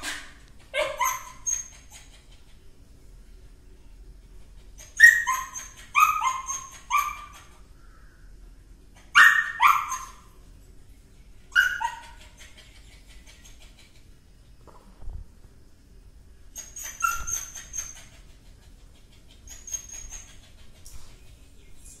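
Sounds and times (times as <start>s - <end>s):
small dog barking: 0.0s - 1.5s, 9.1s - 10.3s.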